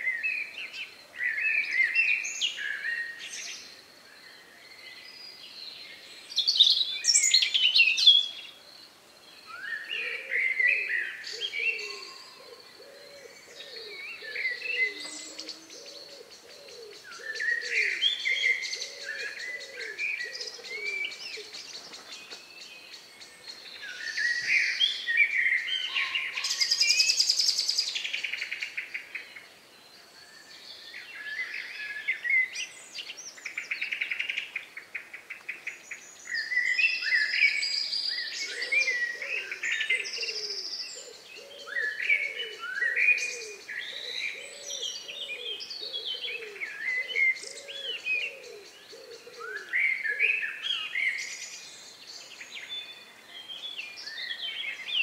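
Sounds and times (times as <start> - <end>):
songbirds warbling: 0.0 - 55.0.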